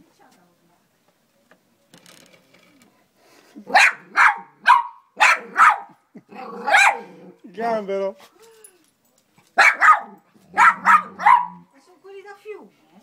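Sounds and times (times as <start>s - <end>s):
faint scratchy rustling: 0.0s - 3.7s
dog barking: 3.7s - 7.2s, 9.6s - 11.7s.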